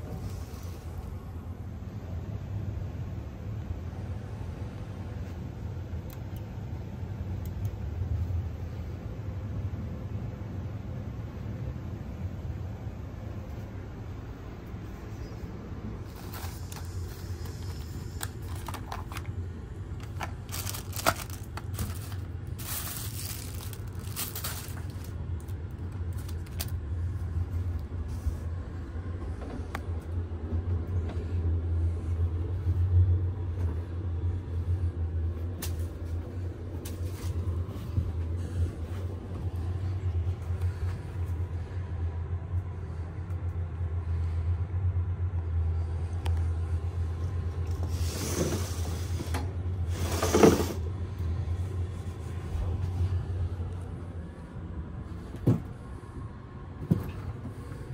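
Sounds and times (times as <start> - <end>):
train rumbling: 0.0 - 57.9.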